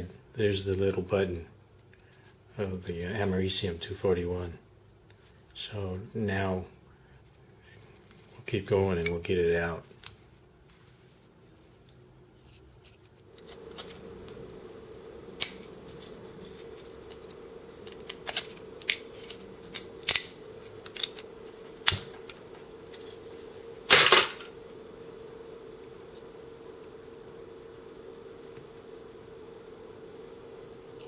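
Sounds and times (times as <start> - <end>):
steady hum: 0.0 - 31.0
plastic crunch: 23.9 - 24.5.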